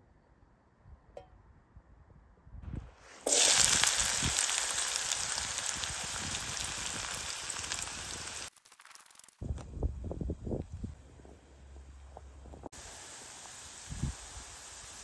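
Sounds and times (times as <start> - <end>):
onions sizzling in hot oil: 3.2 - 9.2, 12.8 - 15.0.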